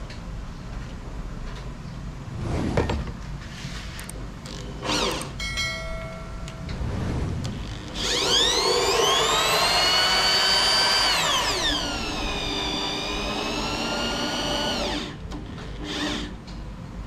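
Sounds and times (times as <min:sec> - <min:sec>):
electric drill motor whine: 0:04.5 - 0:05.3, 0:07.6 - 0:15.2, 0:15.8 - 0:16.3.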